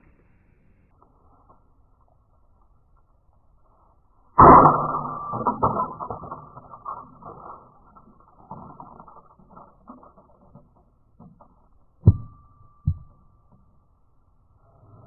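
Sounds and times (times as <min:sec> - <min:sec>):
faint knocks and clatter: 0:05.4 - 0:13.7
thin ringing tone: 0:12.0 - 0:14.7.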